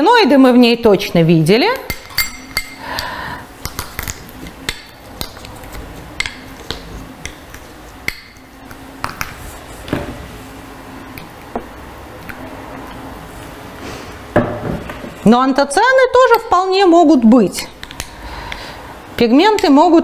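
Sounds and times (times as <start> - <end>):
metal spoon clinking on glass bowl: 1.8 - 3.1
glass ringing: 1.9 - 3.1.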